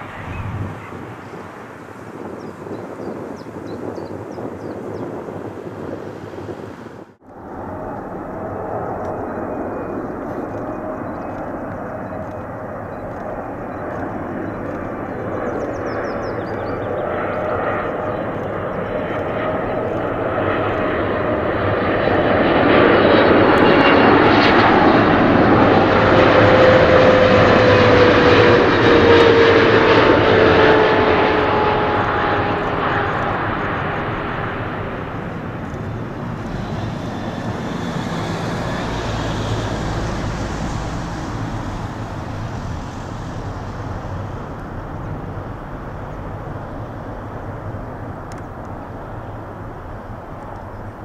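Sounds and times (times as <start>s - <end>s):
jet engine noise with whine: 0.0s - 51.0s
reverse thrust roar: 23.3s - 49.4s.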